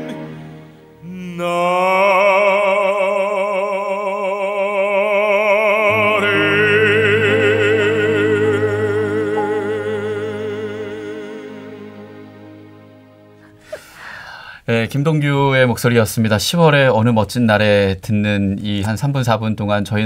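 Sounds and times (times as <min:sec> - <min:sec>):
orchestral accompaniment: 0:00.0 - 0:01.4, 0:05.9 - 0:13.9
baritone singing: 0:00.0 - 0:13.7.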